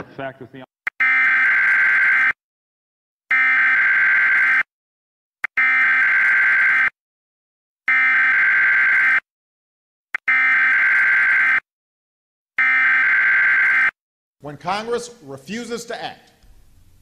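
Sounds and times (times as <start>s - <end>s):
electronic alarm buzzer blasts: 0.9s - 2.4s, 3.3s - 4.7s, 5.4s - 7.0s, 7.9s - 9.3s, 10.2s - 11.7s, 12.6s - 14.0s.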